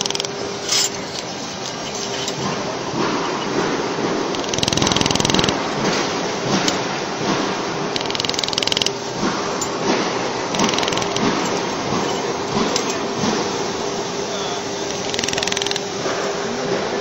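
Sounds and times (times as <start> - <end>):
laser welder rapid clicks: 0.0 - 0.4, 4.3 - 6.8, 7.9 - 9.0, 10.5 - 12.0, 14.8 - 15.9
machine humming: 0.0 - 17.0.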